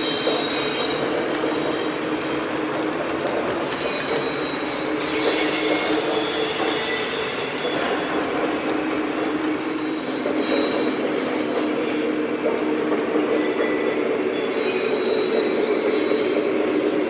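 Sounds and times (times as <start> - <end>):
model train rumbling on track: 0.0 - 17.0
high wheel squeals: 3.4 - 12.0, 13.1 - 17.0.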